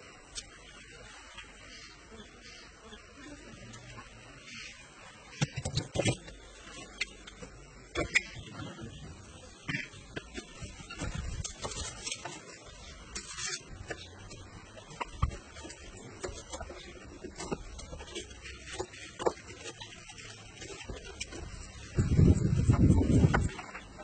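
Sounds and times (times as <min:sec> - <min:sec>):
knife cutting and scraping: 0:11.0 - 0:14.4.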